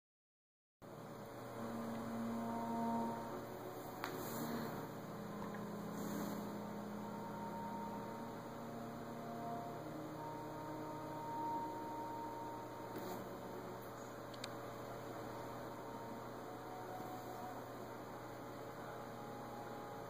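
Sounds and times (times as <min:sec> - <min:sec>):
low electrical hum: 0:00.8 - 0:20.0
faint steady tones: 0:00.9 - 0:20.0.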